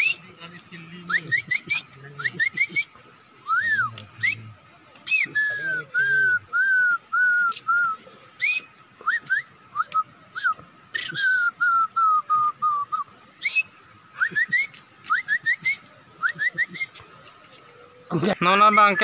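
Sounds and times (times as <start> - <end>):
man whistling bird call: 0.0 - 0.3, 1.0 - 17.0, 18.6 - 19.0.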